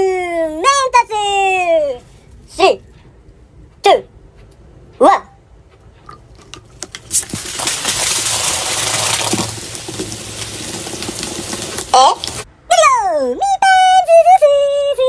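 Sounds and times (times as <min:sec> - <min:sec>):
cola fizzing hiss: 0:06.9 - 0:12.5.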